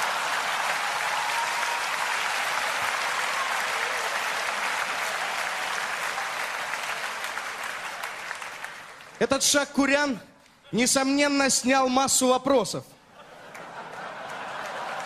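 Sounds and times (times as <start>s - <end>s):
audience applauding: 0.0s - 9.4s, 13.3s - 15.0s.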